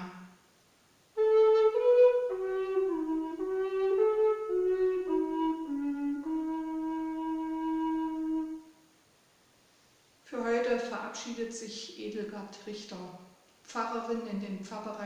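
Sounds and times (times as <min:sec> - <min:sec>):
solo wind instrument melody: 0:01.2 - 0:08.8.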